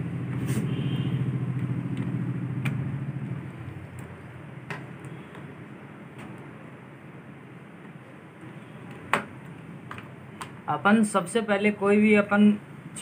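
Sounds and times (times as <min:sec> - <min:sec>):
low engine-like hum: 0:00.0 - 0:08.9.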